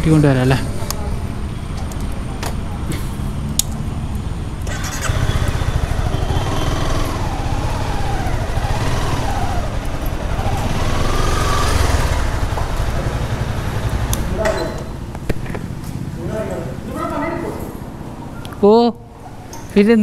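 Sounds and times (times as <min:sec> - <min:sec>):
motorcycle engine revving: 0:03.2 - 0:17.0.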